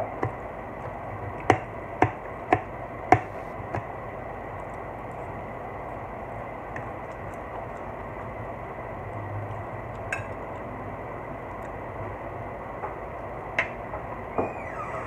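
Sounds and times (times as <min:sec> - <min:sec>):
background hum and hiss: 0:00.0 - 0:15.0
person chewing: 0:06.8 - 0:08.4.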